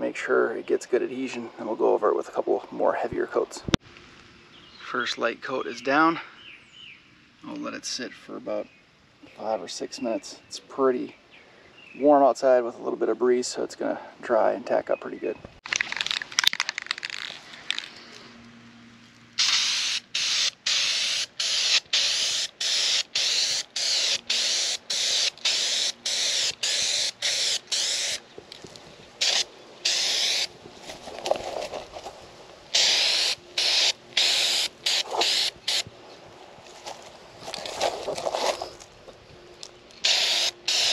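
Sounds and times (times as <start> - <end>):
spray paint can hissing: 19.4 - 28.2, 29.2 - 30.5, 32.7 - 35.9, 40.0 - 40.9.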